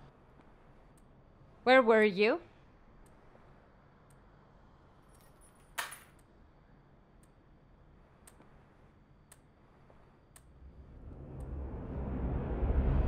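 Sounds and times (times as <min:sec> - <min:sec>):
faint regular ticks: 0:08.0 - 0:10.6.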